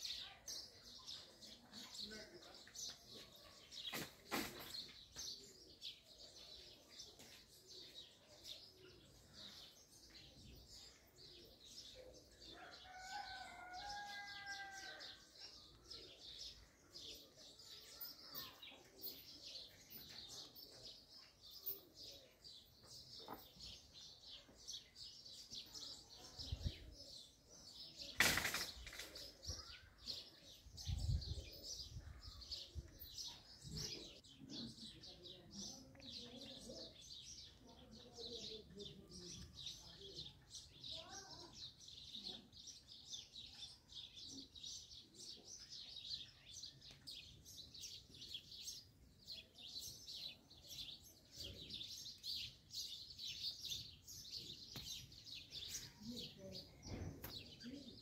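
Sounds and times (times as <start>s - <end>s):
small birds chirping: 0.0s - 58.0s
rooster crowing: 12.8s - 15.1s.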